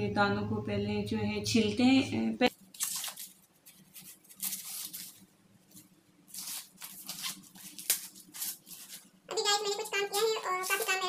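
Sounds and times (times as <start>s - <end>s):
corn husks tearing: 2.7s - 5.2s, 6.3s - 9.0s.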